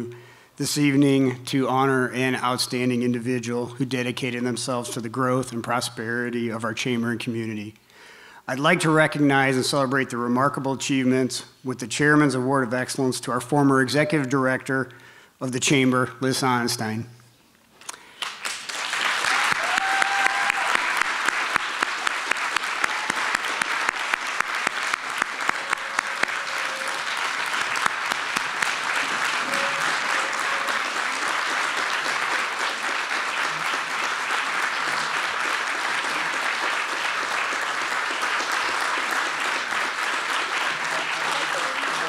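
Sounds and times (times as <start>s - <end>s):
sharp close clapping: 17.8s - 42.0s
audience applauding: 18.1s - 42.0s.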